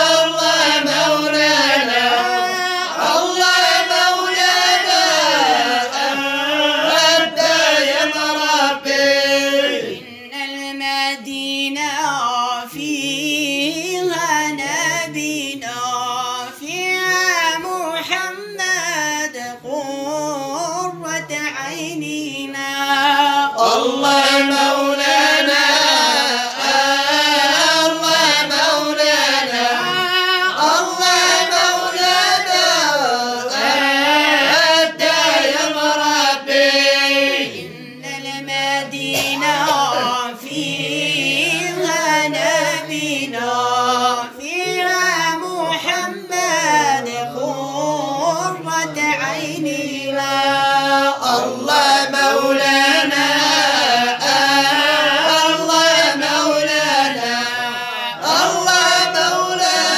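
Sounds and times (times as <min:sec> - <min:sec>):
man singing: 0:00.0 - 0:59.9.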